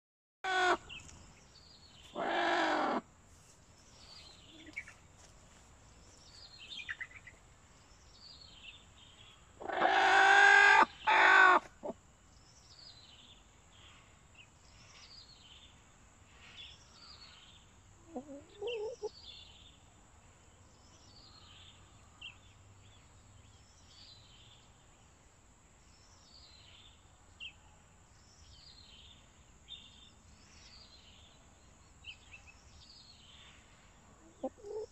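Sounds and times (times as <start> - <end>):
chickens squawking: 0.4 - 1.0, 2.1 - 3.0, 9.6 - 12.0, 18.1 - 19.1, 34.3 - 34.9.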